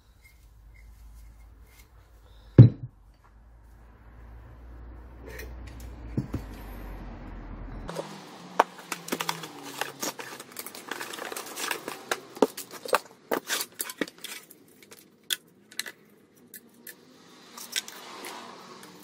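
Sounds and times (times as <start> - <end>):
metal parts and tools rattling: 8.8 - 19.0.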